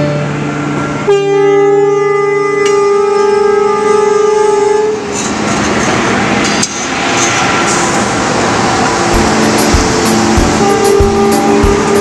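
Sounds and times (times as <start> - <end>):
locomotive horn blast: 0.0 - 0.4, 1.0 - 5.1, 10.2 - 12.0
locomotive rumbling on rails: 0.0 - 12.0.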